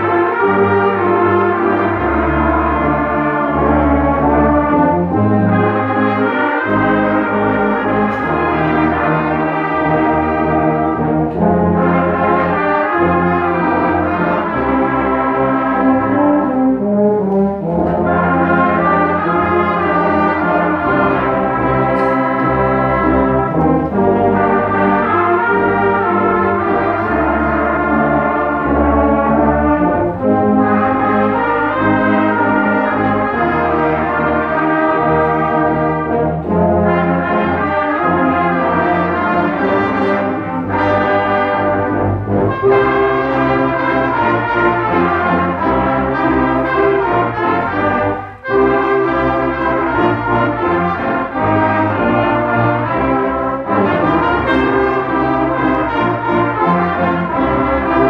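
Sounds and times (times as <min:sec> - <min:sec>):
brass band playing chords: 0:00.0 - 0:58.0.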